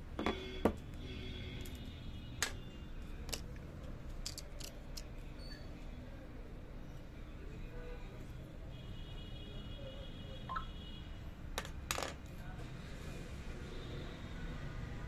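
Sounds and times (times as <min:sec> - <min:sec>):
light clicks of handled parts: 0:02.4 - 0:05.2.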